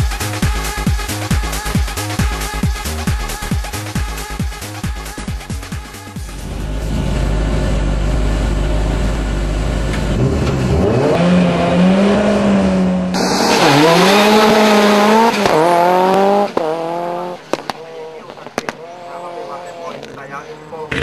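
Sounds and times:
rally car engine: 5.1 - 21.0.

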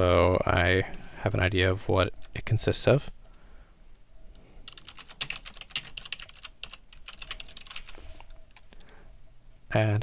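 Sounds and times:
typing on computer keyboard: 4.7 - 8.9.

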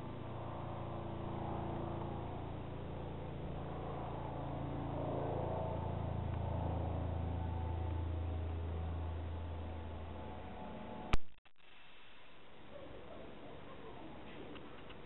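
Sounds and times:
helicopter rotor drone: 0.0 - 11.2.

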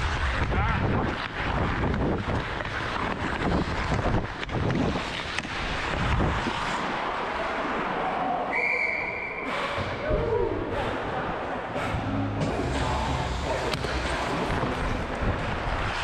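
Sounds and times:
wind on microphone: 0.0 - 6.9
skates scraping on ice: 0.0 - 8.4, 12.8 - 16.0.

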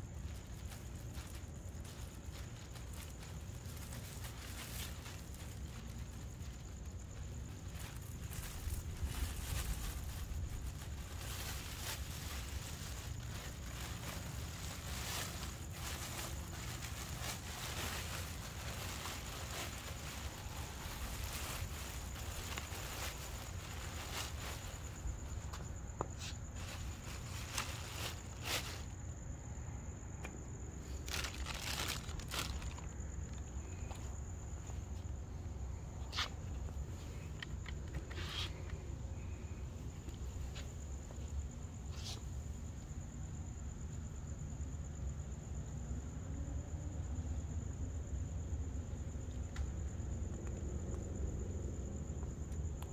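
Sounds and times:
plastic bag rustling and crinkling: 0.0 - 29.1, 30.8 - 34.7
cricket trilling: 0.0 - 52.9
brief rustles: 37.2 - 38.8.

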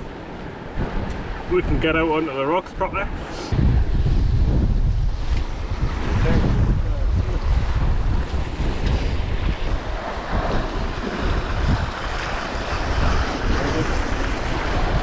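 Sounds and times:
wind buffeting microphone: 0.0 - 15.0
sea waves breaking on rocks: 3.5 - 15.0.

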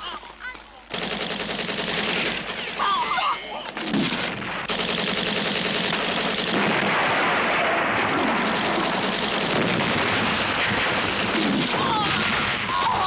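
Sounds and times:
machine gun firing: 0.9 - 13.0
explosions: 3.7 - 4.8, 5.9 - 13.0.

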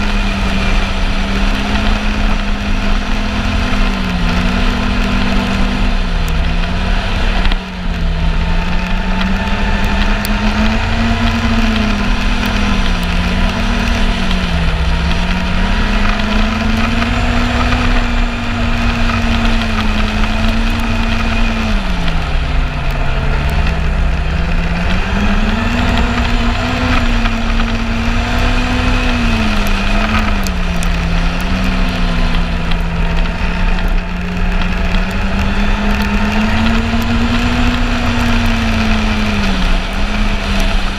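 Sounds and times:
snowmobile engine running: 0.0 - 40.9
steady rushing noise: 0.0 - 40.9.

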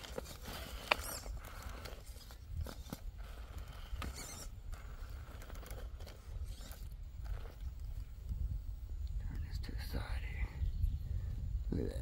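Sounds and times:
toy car tyres scrabbling on stone: 0.0 - 8.3.

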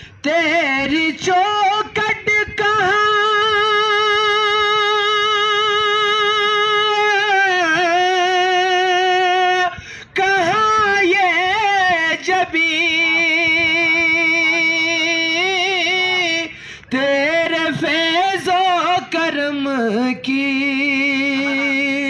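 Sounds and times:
singer breath: 0.0 - 0.2, 9.7 - 10.2, 16.5 - 16.9
person singing devotional song: 0.0 - 22.0.

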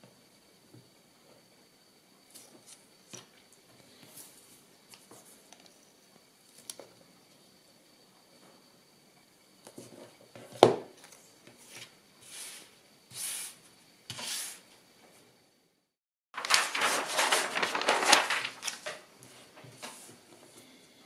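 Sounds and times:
paperboard sliding on plastic mat: 11.6 - 14.6, 16.4 - 20.2
paper rustling and crackling: 16.4 - 20.1.

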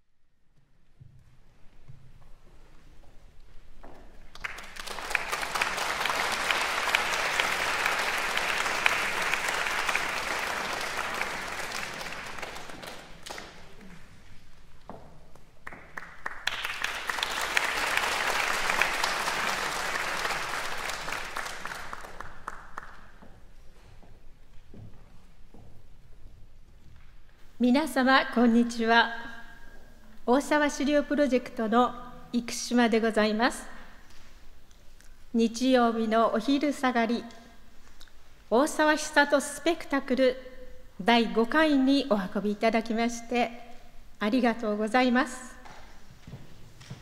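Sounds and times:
audience applauding: 4.3 - 14.1, 15.6 - 23.2.

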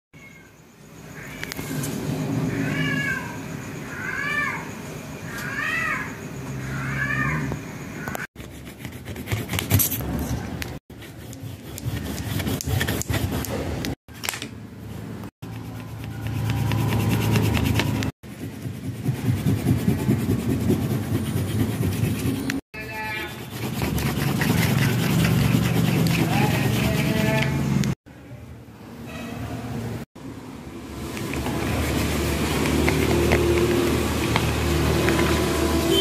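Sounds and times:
meow-like animal cries: 2.5 - 4.7, 5.3 - 8.3
crayons scribbling on paper: 8.4 - 10.1, 10.9 - 13.9, 15.4 - 27.6, 31.2 - 36.0.

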